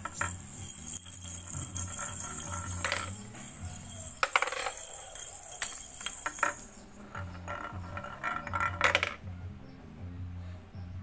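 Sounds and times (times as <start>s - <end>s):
glass marbles clinking: 0.0s - 9.2s
background music: 0.0s - 11.0s.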